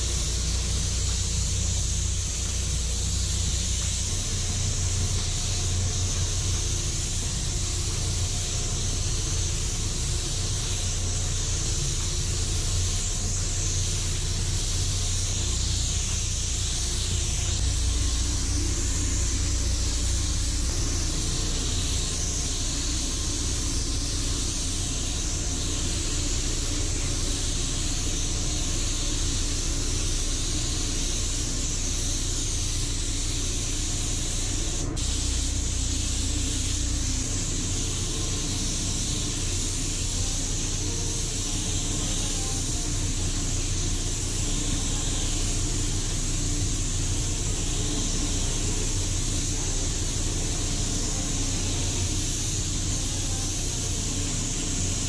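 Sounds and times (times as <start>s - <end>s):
spray gun air hissing: 0.0s - 55.0s.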